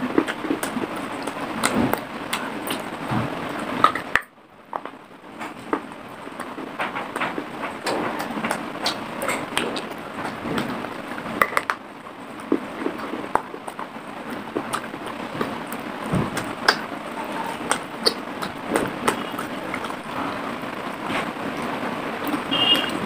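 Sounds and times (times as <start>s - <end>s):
chewing crunchy clay: 0.0s - 23.0s.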